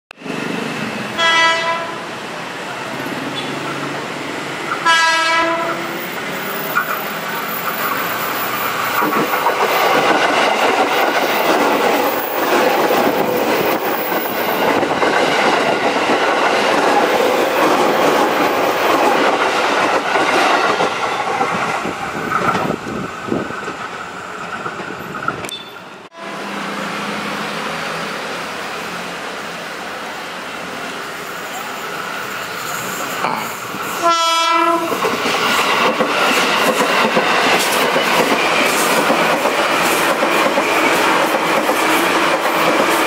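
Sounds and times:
train horn: 1.2 - 2.1, 4.8 - 6.0, 26.1 - 27.1, 34.0 - 35.0
train wheels clacking over rail joints: 4.6 - 25.9, 33.8 - 43.0.

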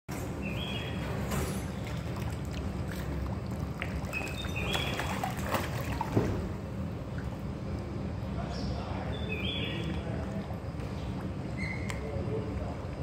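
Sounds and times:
fish splashing at water surface: 1.1 - 7.8.

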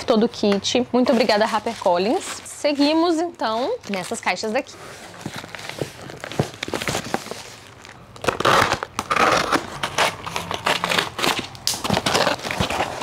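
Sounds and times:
cardboard box tearing and rustling: 5.1 - 13.0.

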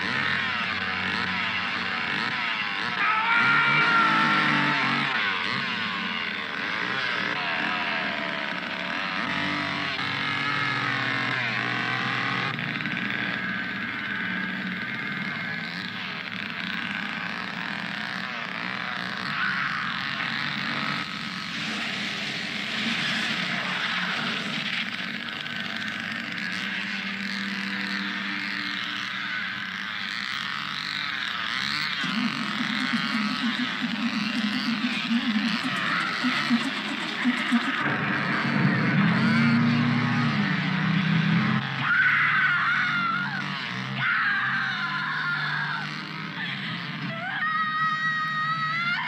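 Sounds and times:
chainsaw revving: 0.0 - 47.2
woman screaming: 2.8 - 6.0, 41.8 - 46.0, 47.1 - 49.0.

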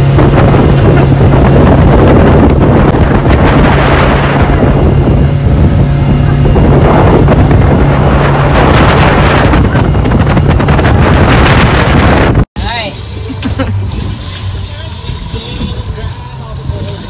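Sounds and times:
wind buffeting microphone: 0.0 - 12.5
outboard engine drone: 0.0 - 17.0
rush of boat wake: 0.0 - 17.0.

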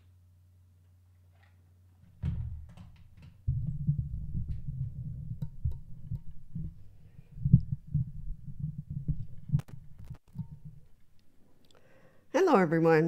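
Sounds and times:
microphone handling rumble and knocks: 2.1 - 11.1.

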